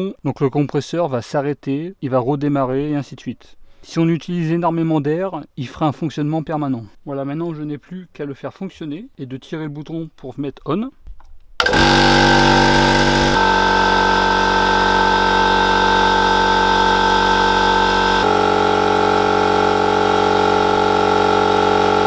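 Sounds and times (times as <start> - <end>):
air compressor running: 11.6 - 22.0.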